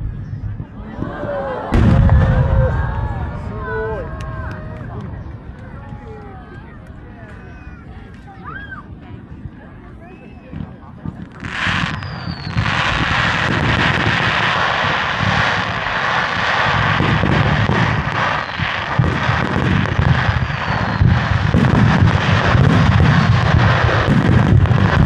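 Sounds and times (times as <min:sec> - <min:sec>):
fireworks booming and crackling: 0:00.0 - 0:08.3, 0:09.1 - 0:25.0
falling whistle: 0:11.9 - 0:12.6.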